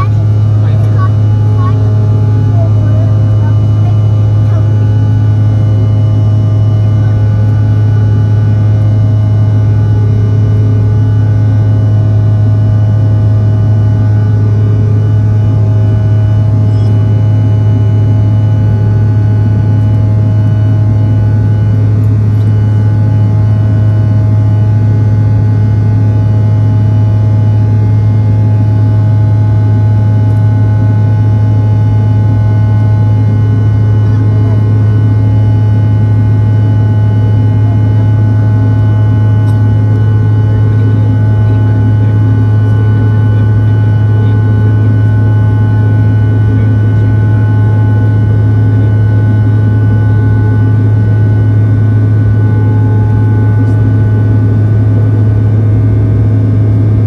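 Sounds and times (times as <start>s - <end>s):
faint steady whining tones: 0.0s - 57.0s
jet engines droning: 0.0s - 57.0s
low hum: 0.0s - 57.0s.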